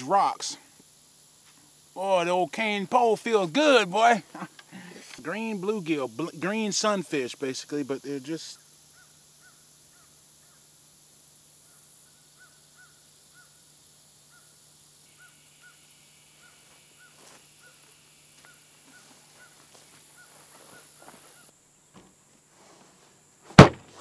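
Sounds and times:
faint animal calls: 11.6 - 21.5.

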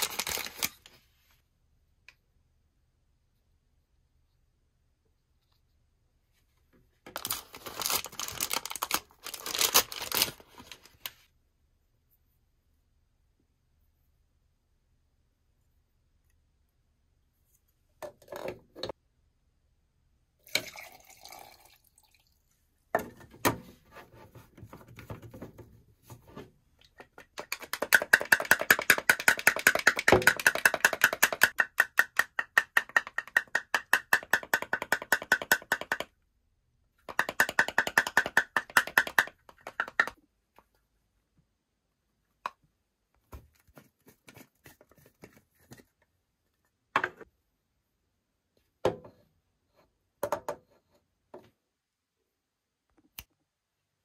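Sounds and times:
water pouring into plastic tube: 20.4 - 22.6.

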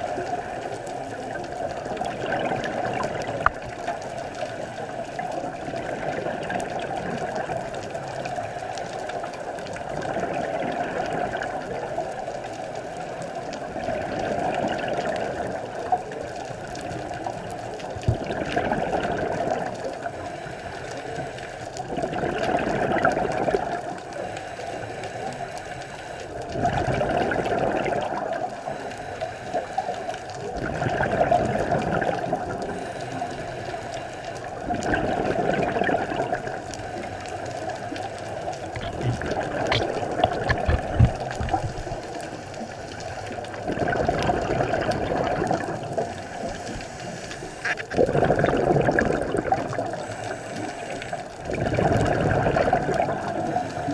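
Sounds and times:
underwater regulator breathing bubbles: 28.6 - 53.9.

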